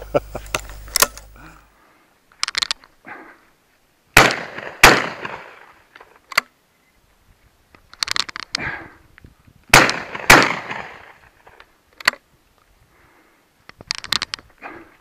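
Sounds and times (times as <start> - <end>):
small clicks: 2.3 - 2.9, 7.7 - 8.6, 11.6 - 12.2, 13.7 - 14.6
shotgun shots with echo: 4.2 - 5.5, 9.7 - 11.1.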